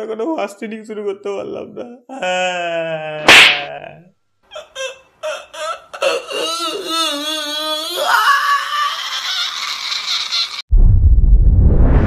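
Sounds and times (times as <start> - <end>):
man sobbing and wailing: 1.5 - 9.5.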